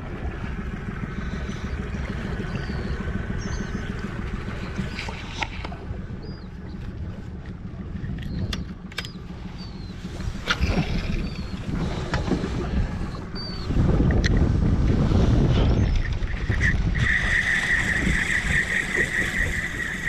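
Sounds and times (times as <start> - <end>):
water lapping against boat hull: 0.0 - 20.0
wind buffeting microphone: 0.0 - 20.0.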